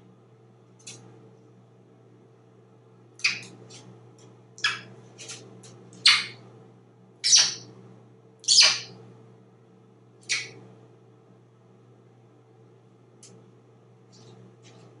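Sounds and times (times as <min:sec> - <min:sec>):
parrot squawking: 0:03.2 - 0:03.5, 0:04.6 - 0:04.9, 0:06.0 - 0:06.4, 0:07.2 - 0:07.7, 0:08.4 - 0:08.9, 0:10.3 - 0:10.6.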